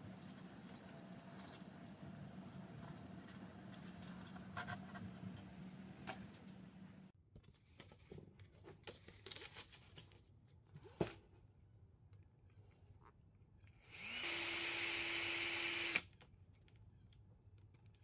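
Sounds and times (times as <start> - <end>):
clicks and scrapes of small parts: 16.1 - 18.0.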